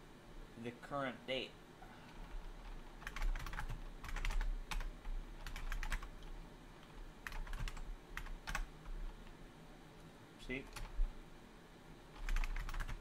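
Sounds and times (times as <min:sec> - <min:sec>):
typing on computer keyboard: 0:02.1 - 0:08.7, 0:10.6 - 0:10.9, 0:12.2 - 0:13.0.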